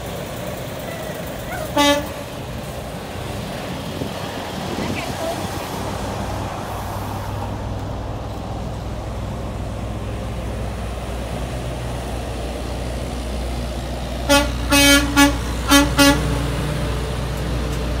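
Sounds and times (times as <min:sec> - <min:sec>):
truck engine rumbling: 0:00.0 - 0:18.0
truck horn honking: 0:01.5 - 0:02.4, 0:14.2 - 0:16.6.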